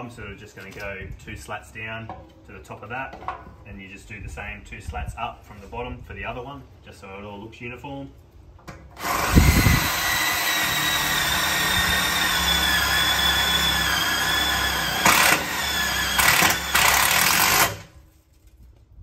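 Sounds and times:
cordless drill driving screw: 0:09.0 - 0:17.9.

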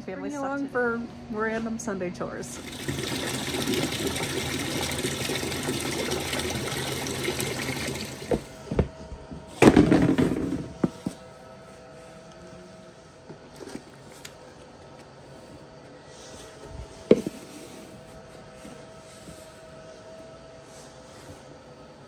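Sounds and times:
water running into plastic bucket: 0:02.6 - 0:08.6.

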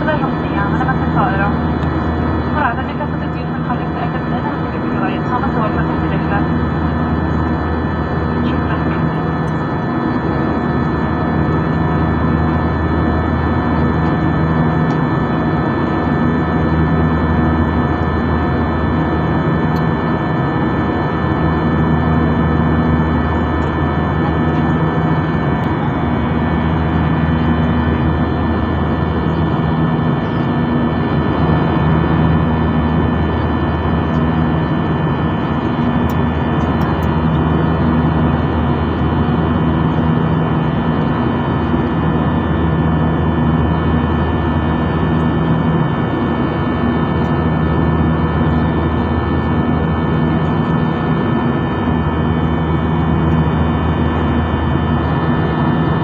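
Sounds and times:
jet engine drone in cabin: 0:00.0 - 0:56.0
low hum: 0:00.0 - 0:56.0.

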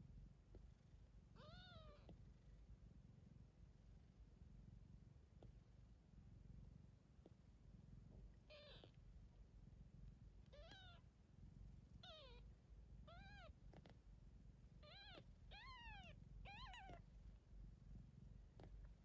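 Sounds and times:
low steady rumble: 0:00.0 - 0:19.0
kittens mewing: 0:10.5 - 0:11.0.

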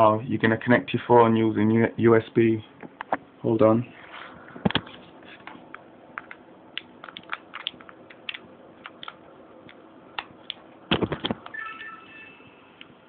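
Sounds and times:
faint steady hum: 0:00.0 - 0:13.0
hands fumbling with camera: 0:10.9 - 0:11.4.

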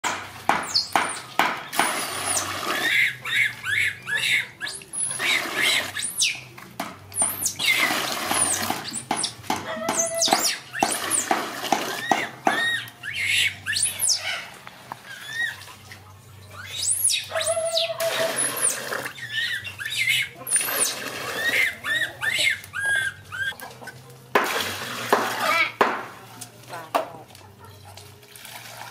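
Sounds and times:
water splashing in plastic bath: 0:00.0 - 0:03.2, 0:04.9 - 0:13.0, 0:20.4 - 0:23.5, 0:24.3 - 0:26.6
monkey squeaking and squealing: 0:00.6 - 0:06.5, 0:07.2 - 0:11.3, 0:11.9 - 0:14.5, 0:15.1 - 0:15.6, 0:16.6 - 0:23.6
water poured into plastic tub: 0:07.7 - 0:08.8, 0:20.5 - 0:21.7, 0:24.4 - 0:25.7.

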